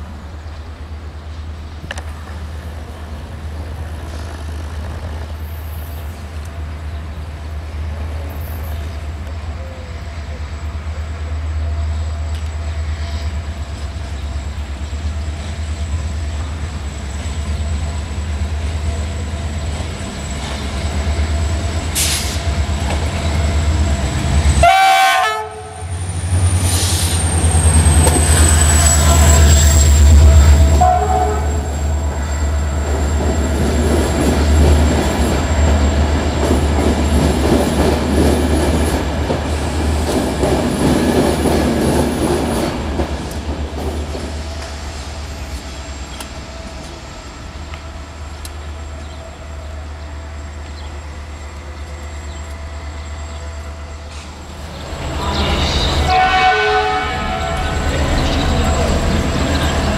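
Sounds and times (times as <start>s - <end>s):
locomotive engine droning: 0.0s - 59.9s
train horn blast: 24.6s - 26.0s, 28.5s - 32.3s, 55.3s - 58.2s
train wheels clattering: 32.5s - 47.8s.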